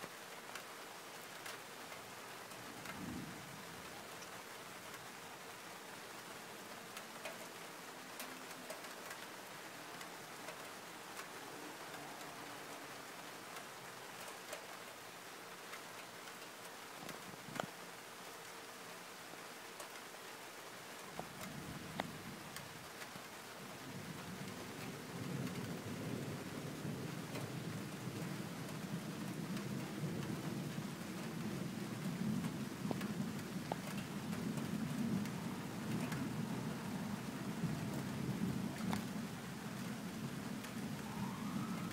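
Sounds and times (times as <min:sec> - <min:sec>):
raindrops ticking close by: 0:00.0 - 0:41.9
steady rain falling: 0:00.0 - 0:41.9
distant thunder rumbling: 0:24.1 - 0:41.9.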